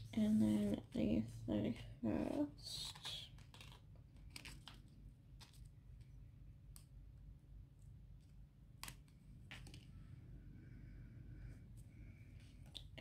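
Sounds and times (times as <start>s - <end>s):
low room hum: 0.0s - 13.0s
paper and sticker sheets clicking: 2.7s - 6.1s.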